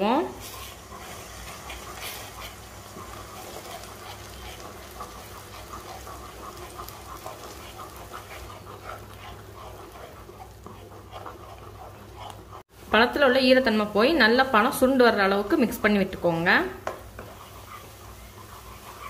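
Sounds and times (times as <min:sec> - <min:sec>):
wooden spatula stirring paste: 0:00.0 - 0:19.0
paste sizzling and popping: 0:00.2 - 0:12.7, 0:14.6 - 0:19.0.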